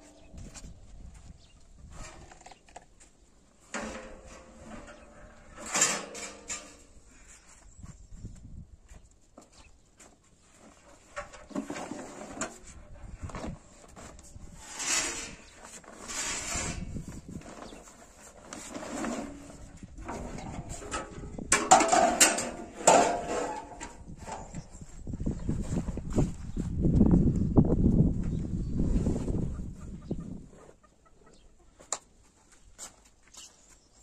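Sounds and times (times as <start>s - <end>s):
metal griddle clanking on burner: 5.6s - 6.8s, 20.8s - 23.8s.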